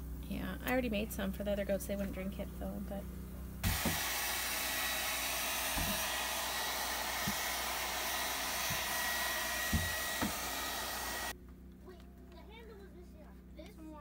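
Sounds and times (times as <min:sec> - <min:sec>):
hair dryer blowing: 0:03.6 - 0:11.4.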